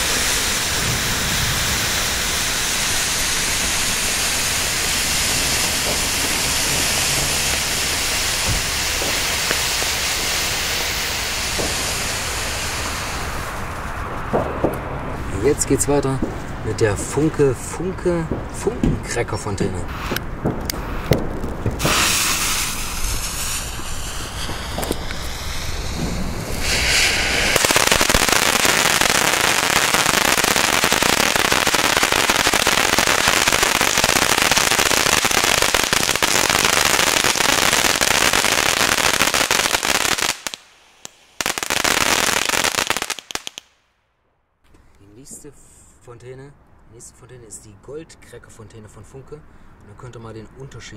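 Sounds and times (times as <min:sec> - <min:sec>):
firework fountain hissing: 0:00.0 - 0:15.3, 0:19.9 - 0:43.8.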